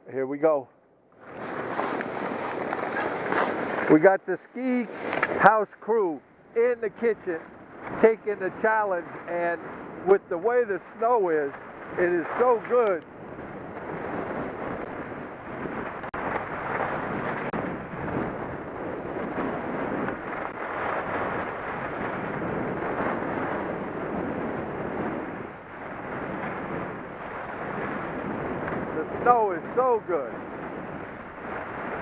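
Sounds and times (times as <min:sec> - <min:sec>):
wind rushing over microphone: 0:00.0 - 0:32.0
skis hissing on snow: 0:01.3 - 0:04.0.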